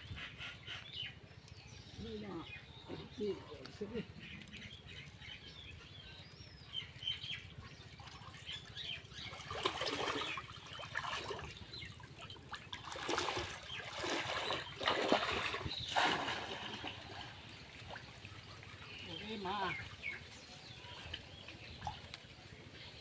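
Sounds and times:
water sloshing and splashing: 6.9 - 22.8.

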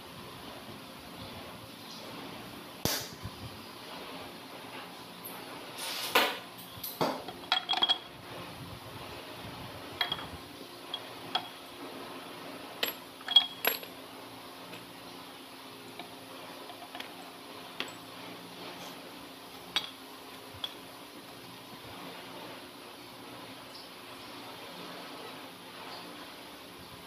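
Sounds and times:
metal gears clinking: 12.8 - 14.0.

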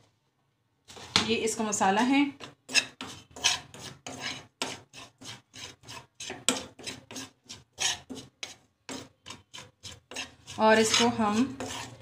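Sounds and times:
metal spoon scraping frying pan: 2.4 - 12.0.

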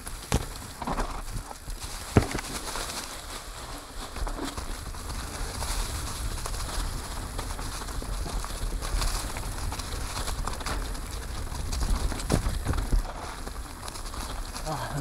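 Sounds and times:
bike rattling over bumps: 0.0 - 15.0
bike tyres on dirt trail: 0.0 - 15.0
wind rumbling on microphone: 0.0 - 15.0.

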